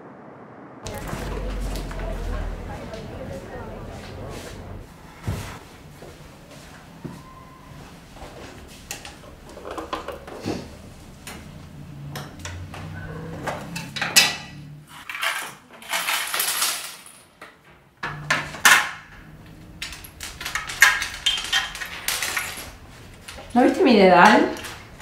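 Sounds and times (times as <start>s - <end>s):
metal pins clinking and rattling: 13.8s - 17.4s, 18.0s - 25.0s.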